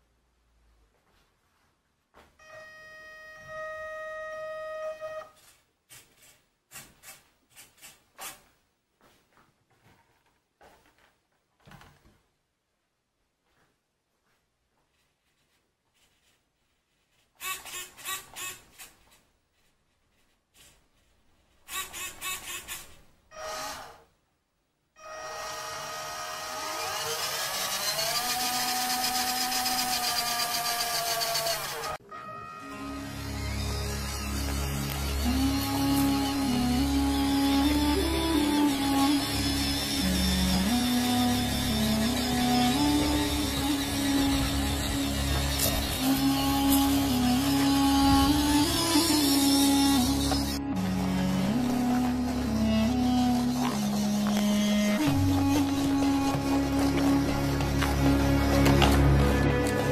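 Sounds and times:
electric motor and gearbox whining: 25.0s - 32.0s, 32.6s - 59.9s.

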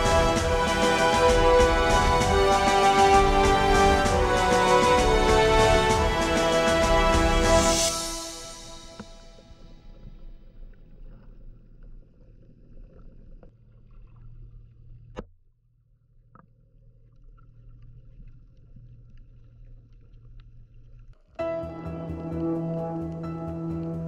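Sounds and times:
underwater rumble of water: 8.8s - 15.2s, 15.8s - 21.3s.

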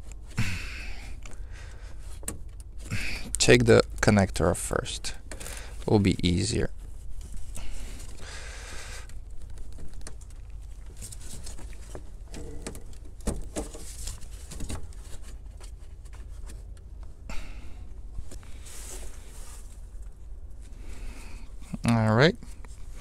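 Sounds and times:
gloved hands rustling: 0.0s - 21.8s.

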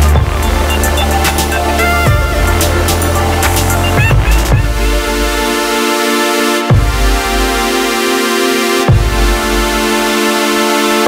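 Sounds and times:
heavy bass hit: 0.0s - 5.6s
electronic music with synth chords: 0.0s - 11.0s.

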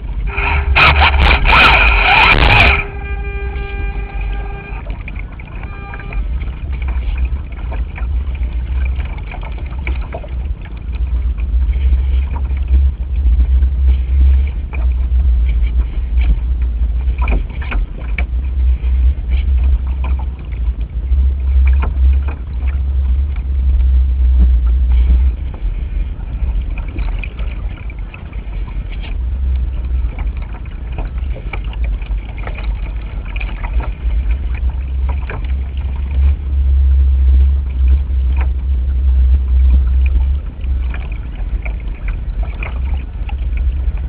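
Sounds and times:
wind buffeting microphone: 0.0s - 44.0s
short pitched tone: 0.2s - 6.6s.

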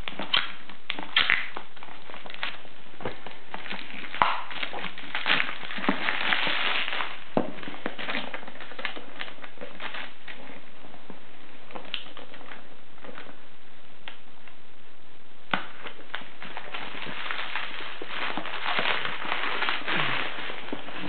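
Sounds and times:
plastic mailer crinkling: 15.6s - 21.0s.

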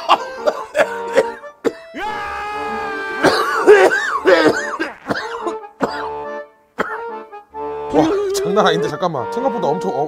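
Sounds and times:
man coughing and gagging: 0.0s - 2.1s, 3.0s - 7.2s, 7.9s - 8.4s
music: 0.0s - 10.0s.

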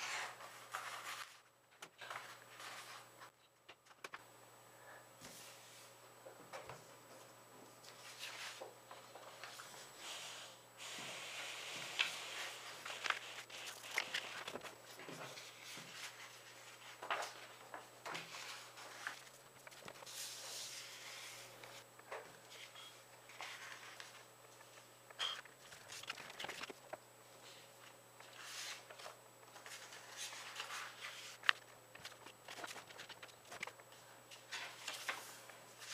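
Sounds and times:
paper rustling and crinkling: 0.0s - 3.3s, 7.8s - 9.9s, 10.8s - 21.8s, 22.4s - 24.8s, 25.5s - 27.0s, 28.2s - 35.9s.

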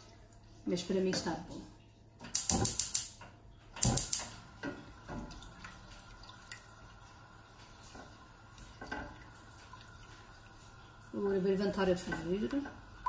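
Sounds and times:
sharp click: 2.3s - 3.1s.

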